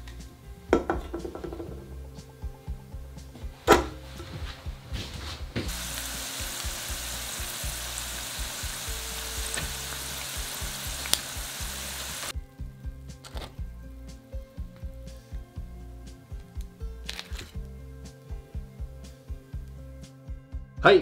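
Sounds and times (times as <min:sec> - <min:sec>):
hot oil sizzling: 0:05.7 - 0:12.4.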